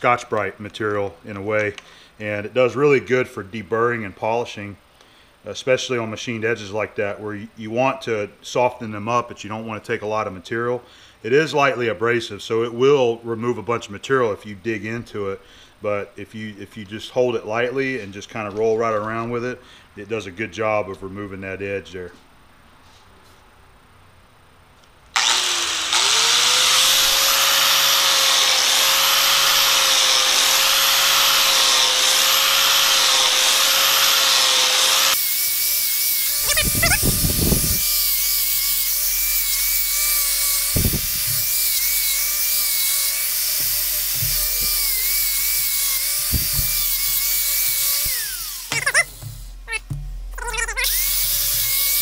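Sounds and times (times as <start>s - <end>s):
angle grinder whining: 25.2s - 52.0s
grinding wheel scrapes and knocks: 38.9s - 52.0s.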